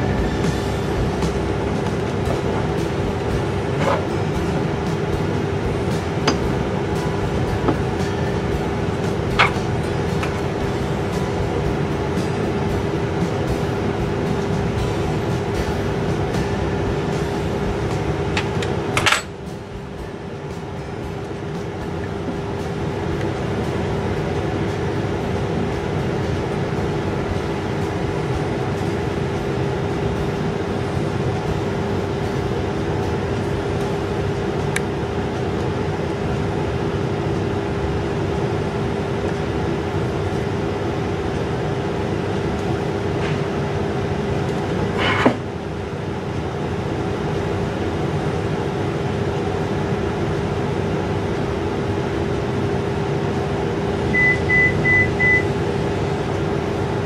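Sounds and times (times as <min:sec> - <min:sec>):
steady machine hum: 0:00.0 - 0:57.0
short high electronic beeps: 0:54.2 - 0:55.5.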